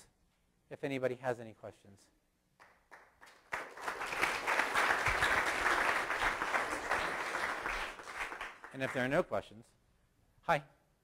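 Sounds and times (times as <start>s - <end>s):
audience applauding: 2.6s - 9.2s.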